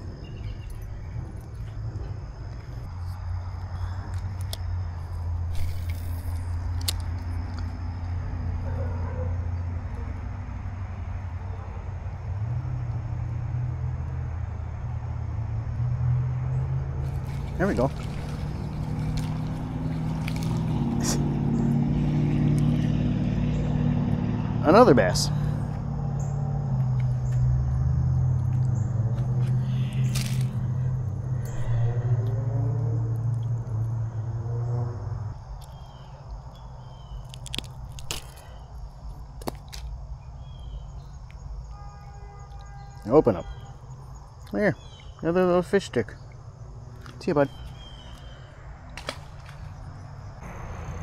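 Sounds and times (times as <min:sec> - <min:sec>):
insect drone: 0:00.0 - 0:51.0.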